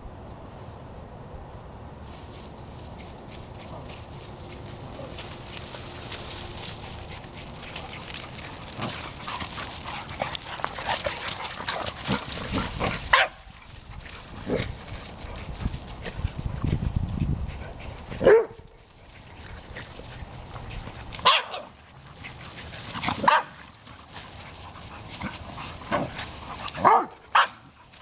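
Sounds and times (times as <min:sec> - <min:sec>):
paws scuffling through leaves: 0:02.0 - 0:28.0
dogs barking: 0:07.1 - 0:13.5, 0:17.8 - 0:18.7, 0:21.0 - 0:23.7, 0:25.0 - 0:27.7.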